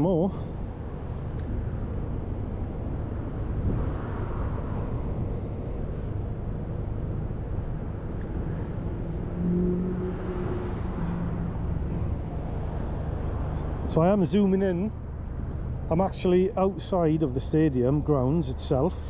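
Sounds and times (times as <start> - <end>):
road traffic rumble: 0.0 - 19.0
vehicle engine hum: 0.0 - 19.0
wind on microphone: 0.5 - 13.2.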